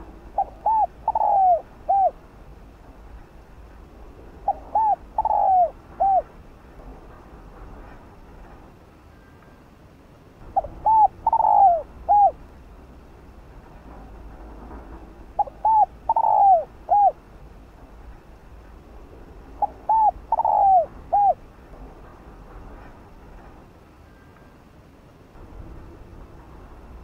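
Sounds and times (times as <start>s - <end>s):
dove cooing: 0.0s - 2.2s, 4.4s - 6.3s, 10.5s - 12.4s, 15.4s - 17.2s, 19.6s - 21.4s.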